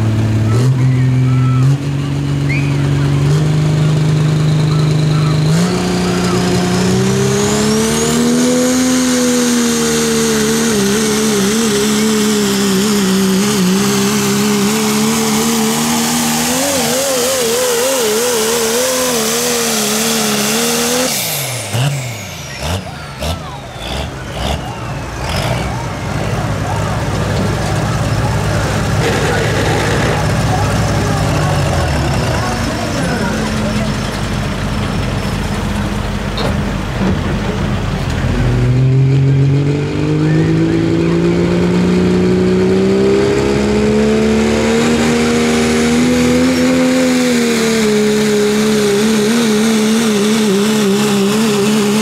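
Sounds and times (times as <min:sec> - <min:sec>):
engine at full throttle: 0:00.0 - 0:52.0.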